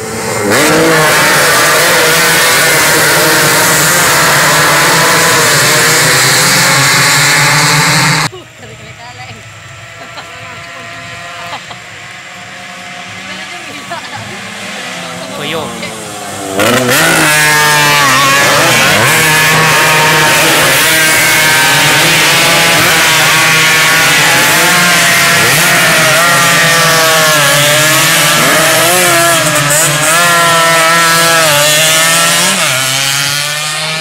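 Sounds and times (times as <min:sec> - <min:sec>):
racing motorcycles passing: 0:00.0 - 0:34.0.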